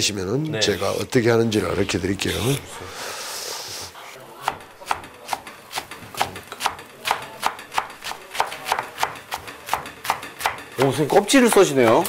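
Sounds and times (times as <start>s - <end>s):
knife chopping on wooden board: 4.4s - 12.0s.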